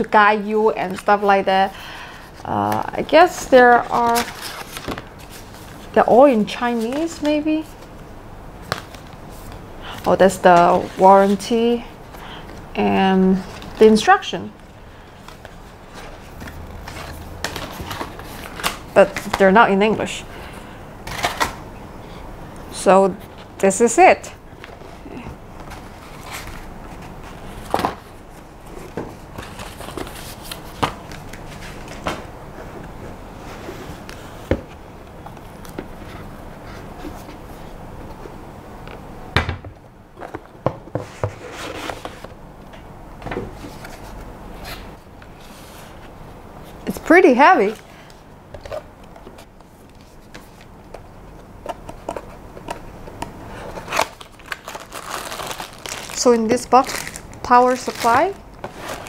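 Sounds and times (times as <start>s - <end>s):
cardboard packaging handled: 51.7s - 59.0s.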